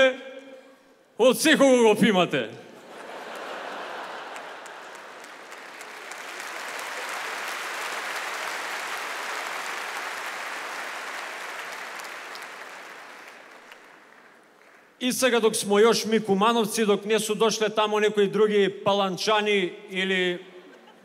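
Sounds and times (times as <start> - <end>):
large audience applauding: 2.9 - 15.0.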